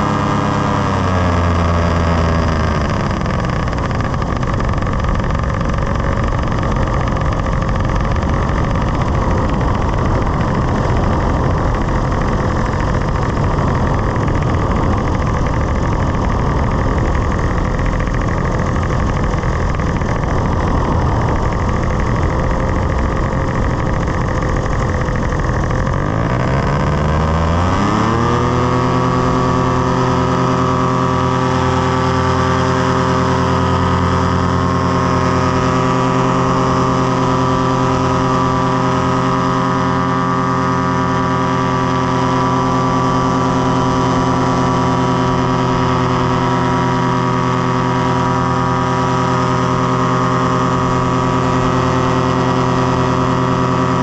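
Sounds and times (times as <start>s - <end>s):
paraglider engine and propeller: 0.0s - 54.0s.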